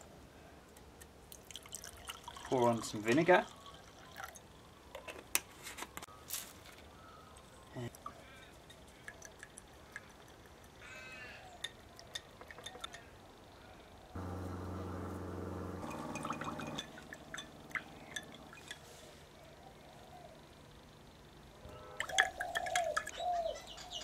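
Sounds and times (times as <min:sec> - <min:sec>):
small liquid sounds: 0:01.0 - 0:04.8, 0:07.7 - 0:10.8
low steady hum: 0:14.0 - 0:22.0
wire clinking in glass: 0:15.8 - 0:18.9.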